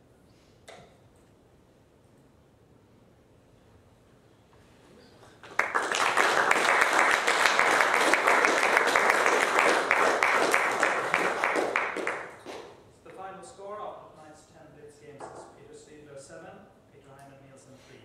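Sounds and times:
audience clapping: 5.2 - 12.8.

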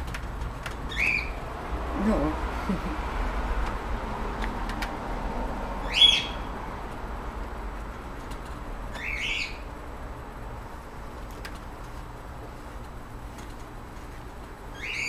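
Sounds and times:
high bird chirps: 0.9 - 1.4, 5.8 - 6.5, 8.9 - 9.6, 14.7 - 15.0.

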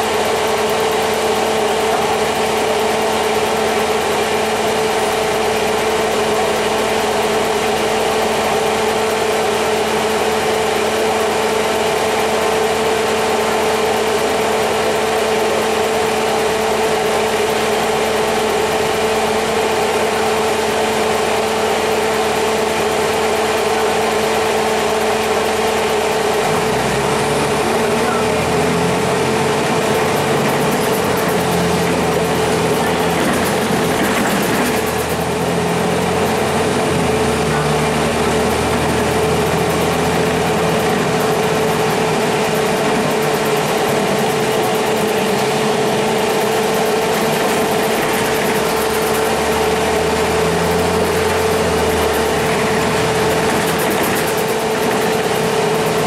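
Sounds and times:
bus diesel engine running: 0.0 - 56.0
engine revving up: 26.2 - 56.0.

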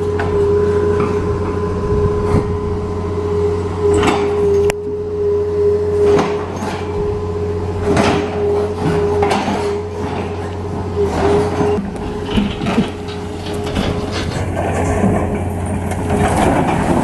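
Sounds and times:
diesel engine running: 0.0 - 17.0
machine knocks and clanks: 7.8 - 17.0.

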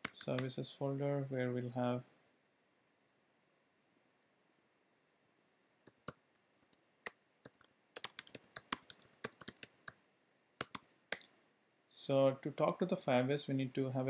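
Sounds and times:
typing on computer keyboard: 7.4 - 10.0, 10.6 - 10.9.

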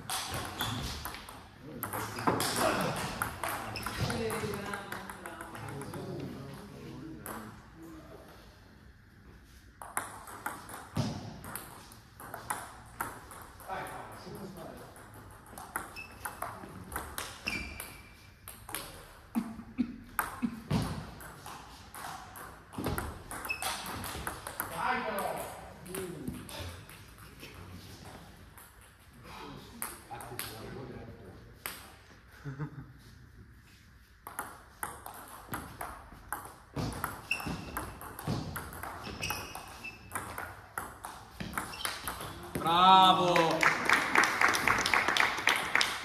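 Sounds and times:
ball bouncing on table: 0.0 - 6.2, 9.8 - 14.0, 20.1 - 26.6, 34.2 - 42.7
short high squeaks: 17.4 - 18.2, 37.2 - 37.8, 39.0 - 40.1.

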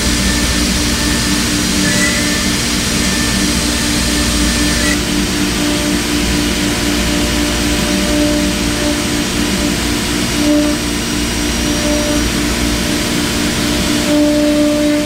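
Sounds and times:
router spindle carving wood: 0.0 - 15.0.

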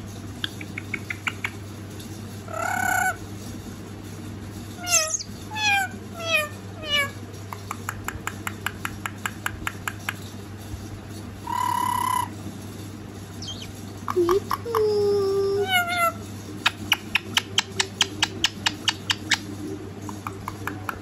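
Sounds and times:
parakeet calling: 2.5 - 3.2, 4.8 - 7.2, 11.4 - 12.4, 13.4 - 14.7, 15.6 - 19.5.

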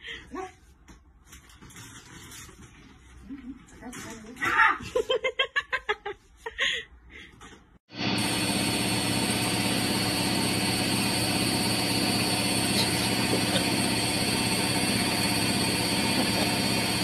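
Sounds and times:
washing machine spinning: 7.9 - 17.0.

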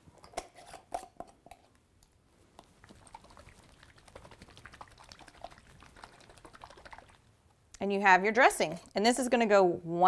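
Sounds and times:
liquid sloshing in shaken jar: 2.8 - 7.2.

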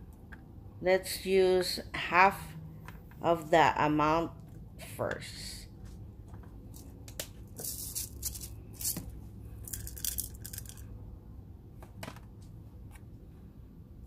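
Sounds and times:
peppercorns clicking into a pot: 9.7 - 10.8.

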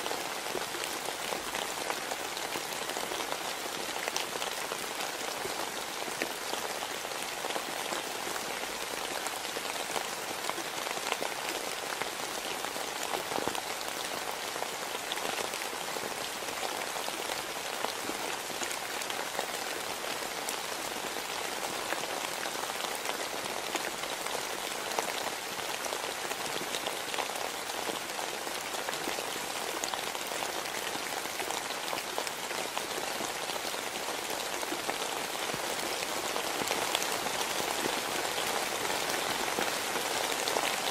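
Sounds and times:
steady rain falling: 0.0 - 40.9.

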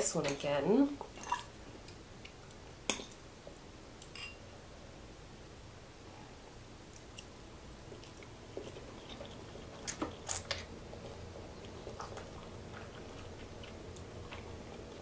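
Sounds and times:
person chewing food: 7.9 - 15.0.

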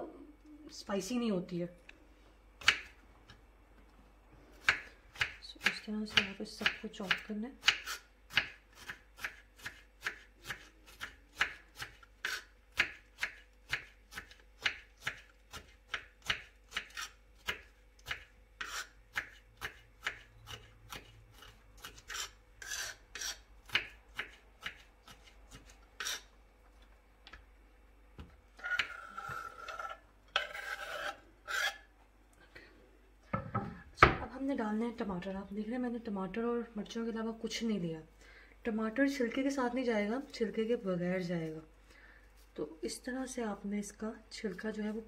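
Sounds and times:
slices scraped off board: 16.3 - 26.3, 28.6 - 31.9.

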